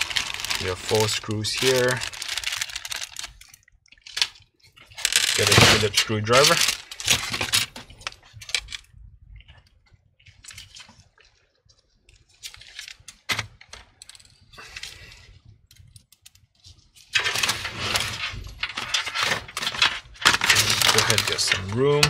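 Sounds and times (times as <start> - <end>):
handling rustling: 0.0 - 8.9, 15.8 - 22.0.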